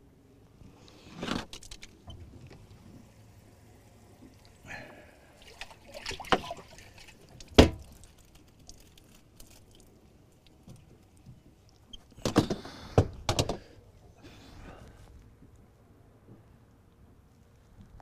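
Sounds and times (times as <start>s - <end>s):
water sloshing and dripping: 1.5s - 12.2s.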